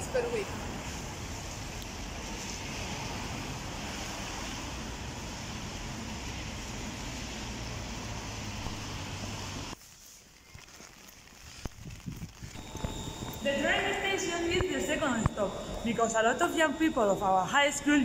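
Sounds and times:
steady rain: 0.0 - 13.9
wind rumbling on microphone: 11.3 - 13.4.

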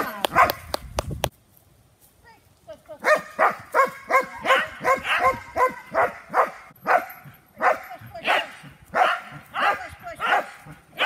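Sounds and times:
dog barking: 0.3 - 0.6, 3.0 - 11.0.

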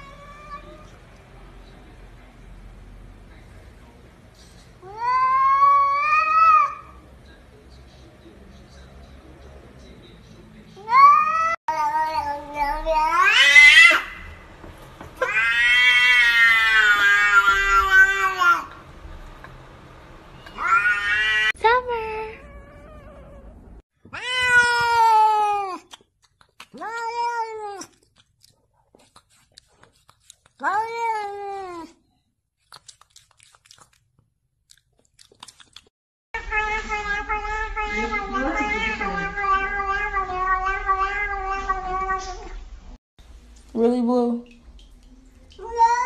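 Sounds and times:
cat meowing: 0.0 - 1.0, 10.8 - 14.3, 15.2 - 18.7, 20.5 - 21.6, 22.2 - 25.8, 36.4 - 42.6.

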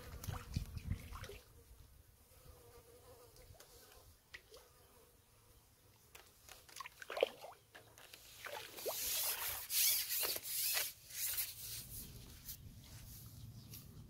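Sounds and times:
water splashing off a net: 0.2 - 1.5, 6.7 - 7.6, 8.3 - 11.0.

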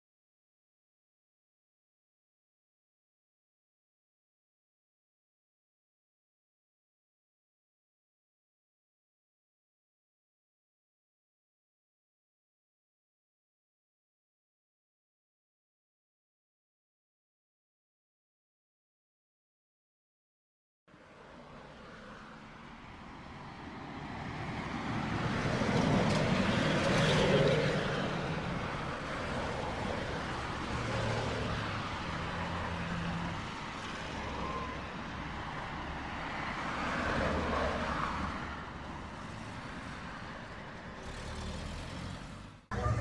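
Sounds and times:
motor vehicles passing: 23.5 - 43.0.

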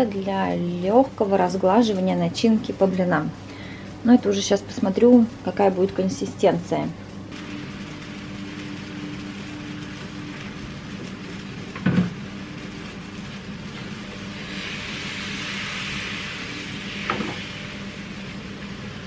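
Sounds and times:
gas stove hum: 0.0 - 19.0
batter sizzling in a pan: 7.3 - 19.0.

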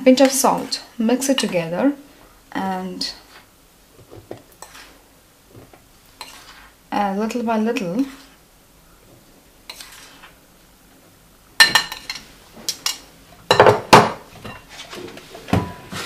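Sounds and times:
metal spoon scraping a bowl: 4.6 - 5.0, 6.2 - 6.8, 9.7 - 10.4.

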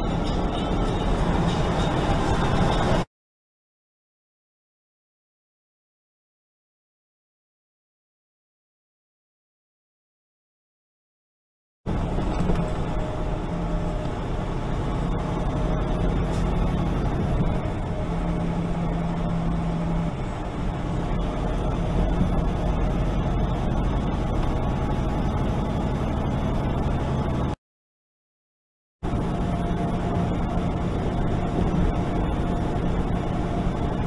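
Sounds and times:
truck engine hum: 0.0 - 3.1, 11.9 - 27.6, 29.0 - 34.0
tyre and road noise: 0.0 - 3.1, 11.9 - 27.6, 29.0 - 34.0.

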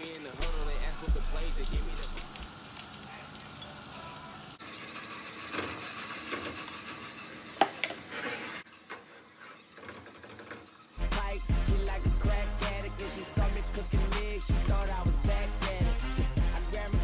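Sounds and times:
food sizzling in a frying pan: 0.0 - 17.0
music: 0.4 - 2.5, 11.0 - 17.0.

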